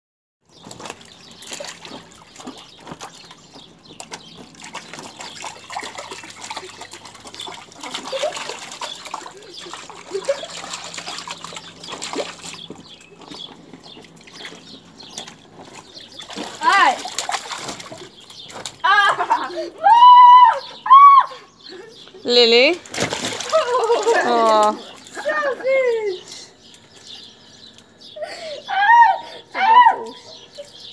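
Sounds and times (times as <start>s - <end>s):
water splashing in paddling pool: 0.5s - 19.4s, 22.6s - 25.8s.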